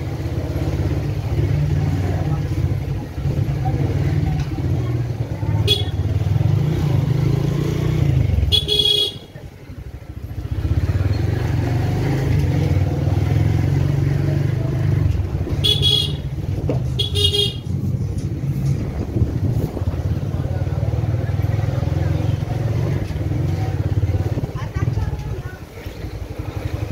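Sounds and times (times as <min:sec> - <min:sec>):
motorcycle horn beeps: 0:05.6 - 0:06.2, 0:08.4 - 0:09.4, 0:15.5 - 0:16.4, 0:17.0 - 0:17.7.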